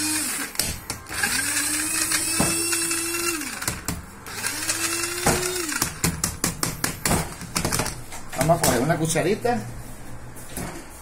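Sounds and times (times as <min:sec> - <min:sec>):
electric chopper motor whine: 0:00.0 - 0:06.0.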